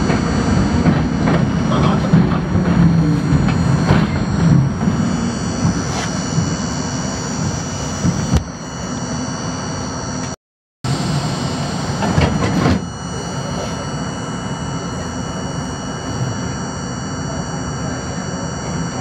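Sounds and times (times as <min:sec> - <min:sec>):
knocks and clatter: 0:00.0 - 0:06.6
high whining tones: 0:00.0 - 0:19.0
subway car humming: 0:00.0 - 0:19.0.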